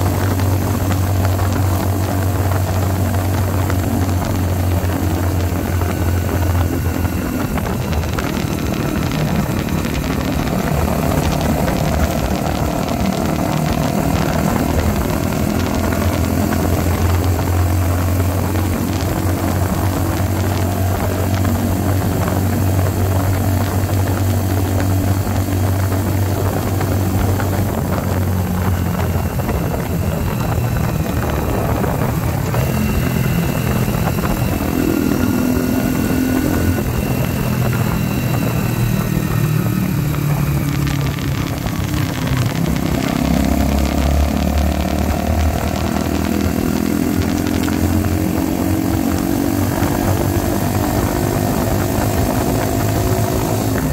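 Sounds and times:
motorcycle engine running: 0:00.0 - 0:53.9.

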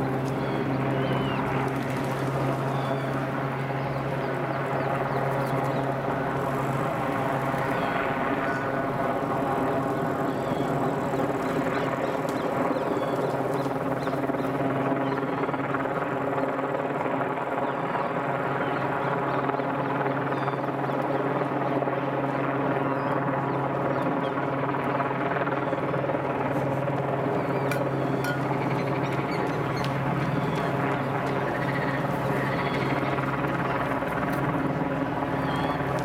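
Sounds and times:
steady machine drone: 0:00.0 - 0:14.9, 0:26.3 - 0:36.0.

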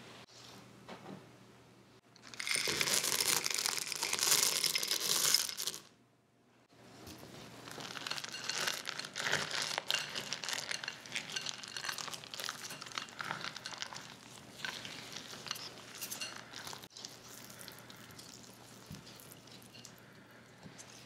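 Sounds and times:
chocolate discs clattering in glass bowl: 0:02.2 - 0:05.8, 0:07.6 - 0:16.9
spatula folding cookie dough: 0:07.0 - 0:21.0.

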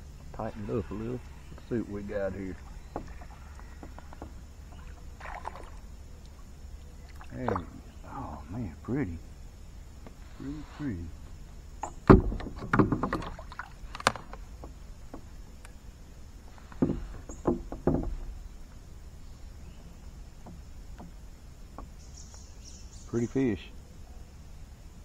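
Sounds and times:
knocks against kayak hull: 0:11.8 - 0:15.4, 0:16.7 - 0:18.4.

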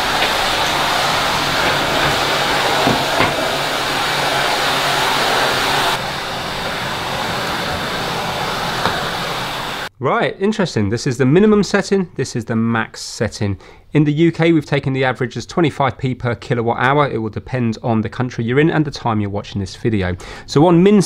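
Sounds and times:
vacuum cleaner running: 0:00.0 - 0:09.9.

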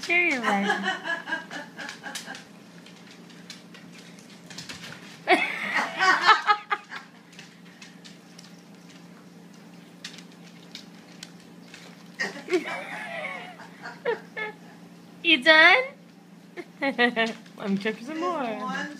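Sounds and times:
low steady hum: 0:00.0 - 0:18.9
person laughing: 0:00.4 - 0:02.4, 0:05.3 - 0:07.1, 0:12.2 - 0:14.6, 0:16.6 - 0:17.4.

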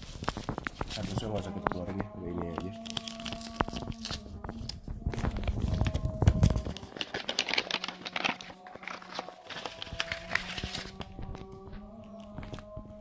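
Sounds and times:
paper envelope crinkling: 0:00.0 - 0:12.6.

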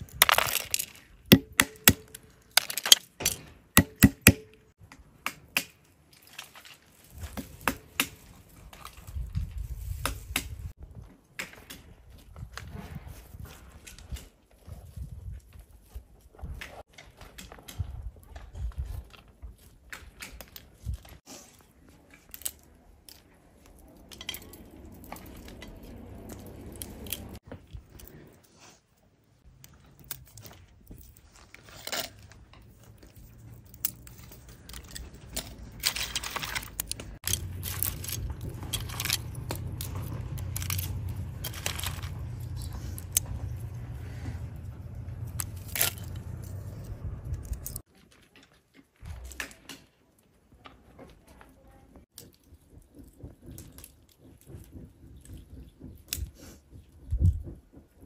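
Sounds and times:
walnut shells cracking: 0:00.1 - 0:04.5, 0:33.5 - 0:43.8
steady low rumble: 0:37.0 - 0:47.8.

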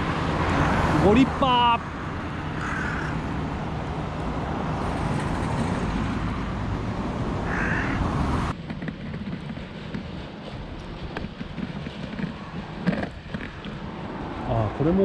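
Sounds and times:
cars passing: 0:00.0 - 0:15.0
crow cawing: 0:02.4 - 0:03.3, 0:07.4 - 0:08.0.

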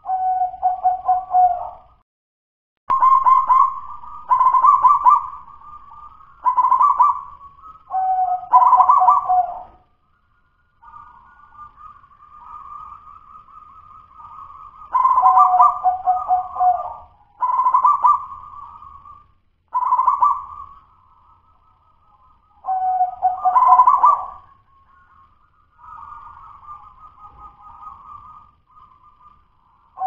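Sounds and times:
dove cooing: 0:00.0 - 0:01.9, 0:02.9 - 0:09.9, 0:10.8 - 0:20.9, 0:22.6 - 0:25.1.

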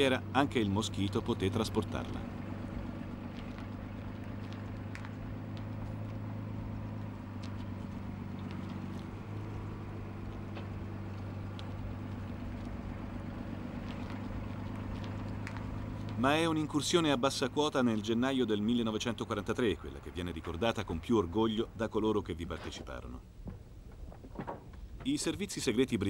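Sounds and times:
tractor engine droning: 0:00.0 - 0:26.0
faint clicks: 0:02.4 - 0:16.2.

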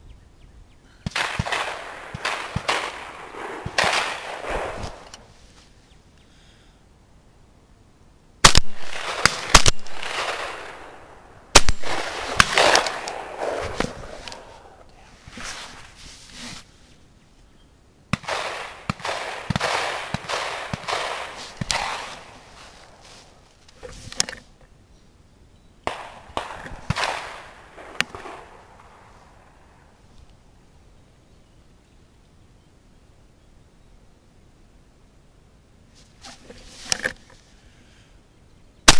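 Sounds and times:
shotgun shots with echo: 0:01.1 - 0:05.0, 0:08.4 - 0:14.8, 0:18.2 - 0:22.4, 0:25.9 - 0:28.9.

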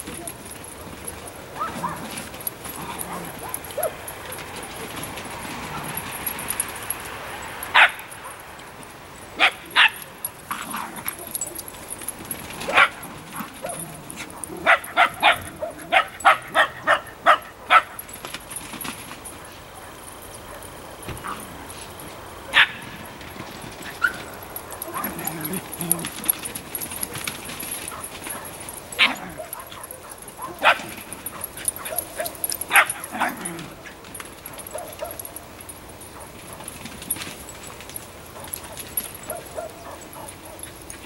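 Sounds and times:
small dog barking: 0:00.8 - 0:02.2, 0:03.0 - 0:04.8, 0:07.4 - 0:08.4, 0:09.4 - 0:11.7, 0:12.7 - 0:18.1, 0:22.4 - 0:23.0, 0:23.9 - 0:26.1, 0:27.9 - 0:33.8, 0:34.6 - 0:35.3, 0:38.3 - 0:40.8.

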